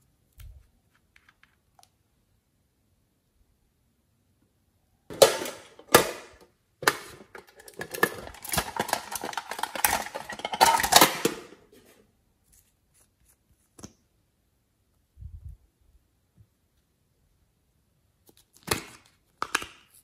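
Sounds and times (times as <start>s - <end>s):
tin box clicking and clattering: 5.1s - 11.6s.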